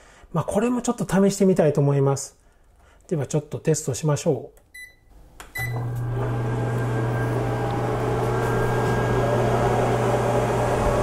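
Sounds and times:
microwave oven beeps: 4.7s - 8.0s
microwave humming with fan noise: 5.5s - 11.0s.

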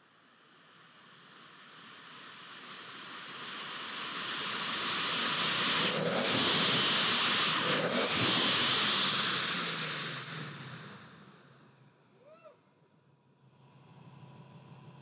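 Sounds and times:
blow-off valve whooshing: 5.4s - 11.6s.

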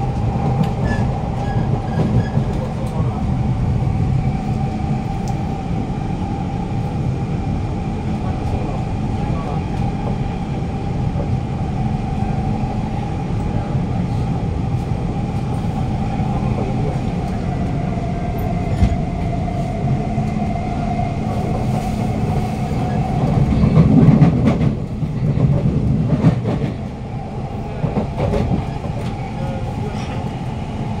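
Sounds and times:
train wheels rumbling on rails: 0.0s - 31.0s.

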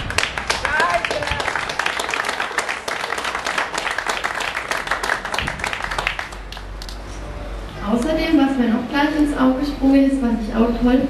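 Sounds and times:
crowd applauding: 0.0s - 7.1s.

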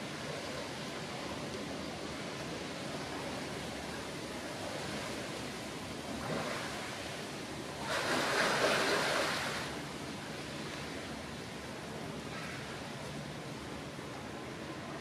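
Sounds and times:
water splashing: 6.1s - 9.8s.

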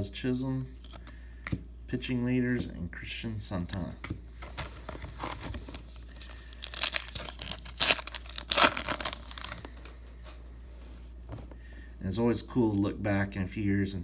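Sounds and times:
wrapper tearing and crinkling: 5.1s - 9.7s.

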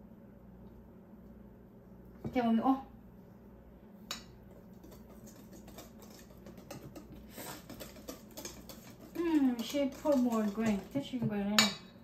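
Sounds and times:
utensil scraping mixing bowl: 4.5s - 11.5s.

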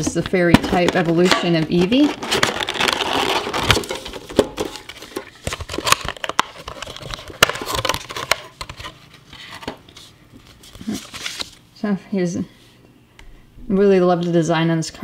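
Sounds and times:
plastic packaging crinkling: 0.0s - 11.6s.

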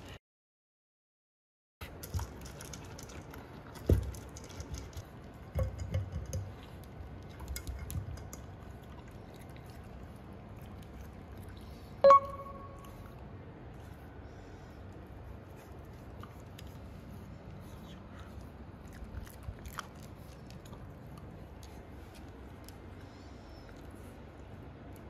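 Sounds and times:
dog crunching kibble in bowl: 1.8s - 11.4s
short ringing tone: 12.0s - 13.0s.

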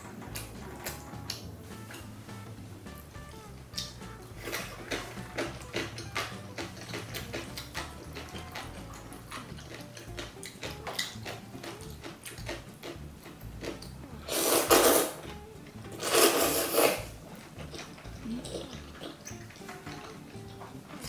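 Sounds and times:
wet mixing of noodles: 0.0s - 21.0s
chopsticks clicking: 3.8s - 15.0s
loud noodle slurps: 14.2s - 15.2s, 16.0s - 17.2s.

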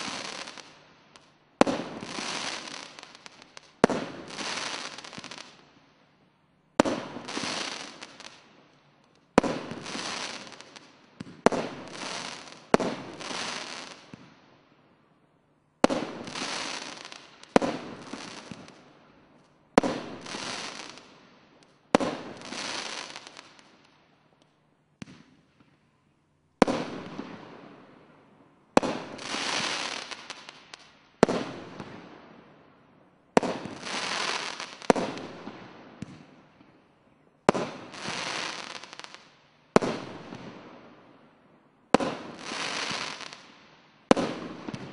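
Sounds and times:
fireworks bangs: 0.0s - 0.8s, 42.0s - 43.5s, 44.1s - 44.9s.

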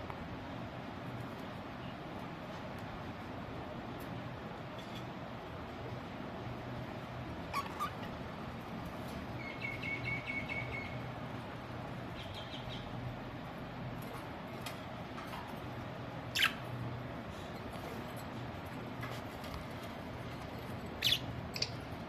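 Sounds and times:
budgerigars chirping: 12.2s - 12.9s, 16.4s - 16.6s, 21.0s - 21.8s.

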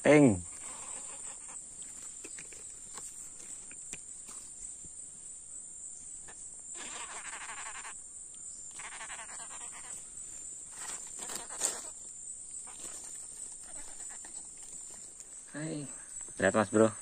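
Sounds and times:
forest insects droning: 0.0s - 17.0s
rasping pulsed insect bursts: 0.0s - 17.0s.

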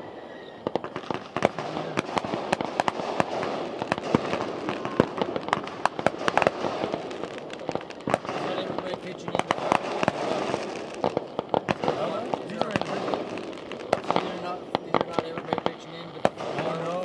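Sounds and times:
fireworks bangs and pops: 0.0s - 17.0s.

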